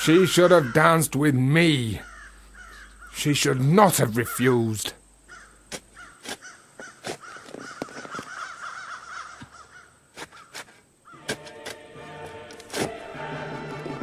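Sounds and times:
chattering bird calls: 0:00.0 - 0:11.2
crows cawing: 0:00.1 - 0:01.1, 0:01.8 - 0:03.3, 0:05.2 - 0:11.3.

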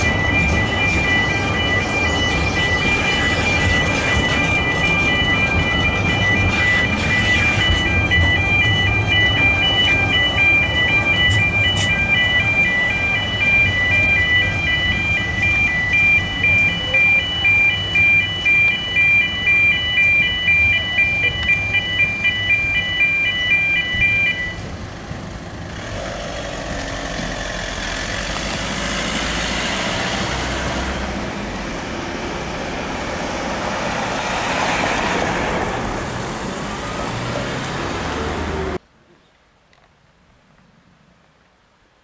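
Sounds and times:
level crossing alarm beeping: 0:00.0 - 0:24.7
cars passing: 0:00.0 - 0:38.8.

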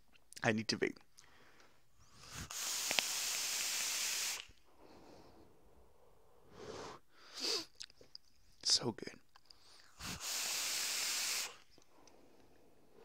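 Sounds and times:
e-cigarette draw hiss: 0:02.0 - 0:05.0, 0:06.5 - 0:07.7, 0:09.6 - 0:11.7
breathy puff exhaling: 0:02.0 - 0:05.5, 0:06.4 - 0:07.7, 0:09.8 - 0:11.7.

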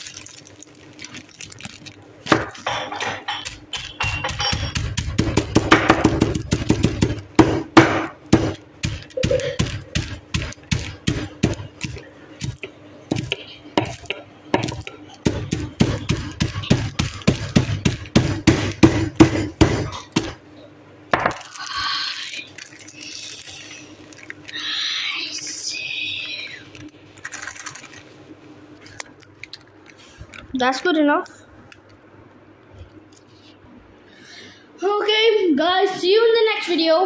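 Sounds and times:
foil bag crinkling: 0:00.0 - 0:07.4, 0:08.3 - 0:13.3, 0:14.7 - 0:18.4, 0:21.2 - 0:30.9
snacks being crushed: 0:00.0 - 0:20.4, 0:21.2 - 0:25.6, 0:26.7 - 0:28.1, 0:28.8 - 0:30.5.

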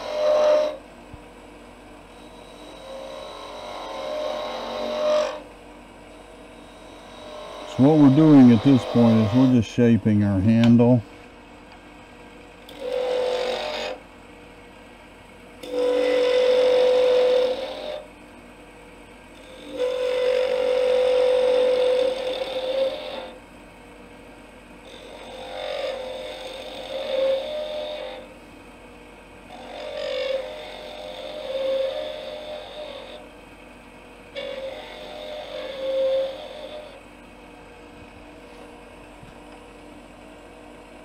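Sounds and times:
chisel cutting wood on lathe: 0:00.0 - 0:00.8, 0:02.1 - 0:05.5, 0:06.1 - 0:10.0, 0:12.6 - 0:14.0, 0:15.6 - 0:18.1, 0:19.4 - 0:23.4, 0:24.8 - 0:28.4, 0:29.4 - 0:33.4, 0:34.3 - 0:37.1
lathe running quietly: 0:00.0 - 0:41.0.

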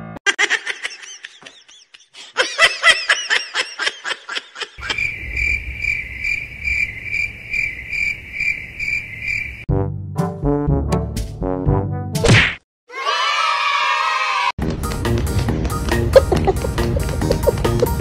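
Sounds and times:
high-pitched laughter: 0:00.2 - 0:05.1, 0:16.1 - 0:18.0
crickets chirping: 0:04.8 - 0:09.7.

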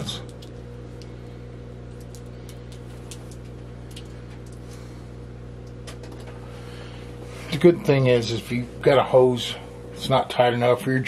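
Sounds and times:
washing machine motor hum: 0:00.0 - 0:11.0.

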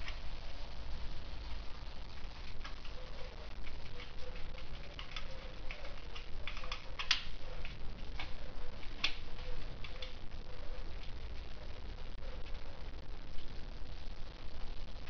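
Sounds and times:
sharp clicks: 0:02.3 - 0:10.3.

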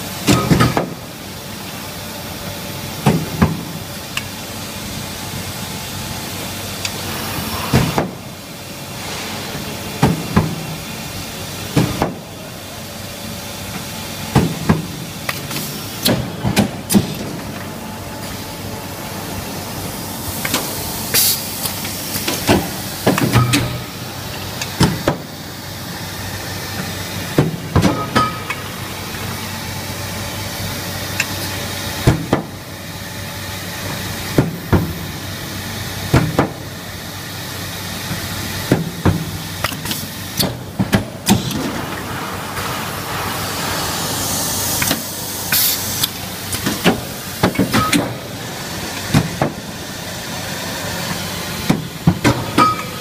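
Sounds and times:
steady factory hum: 0:00.0 - 0:53.0
pneumatic air hissing: 0:20.4 - 0:22.9, 0:43.3 - 0:46.7.

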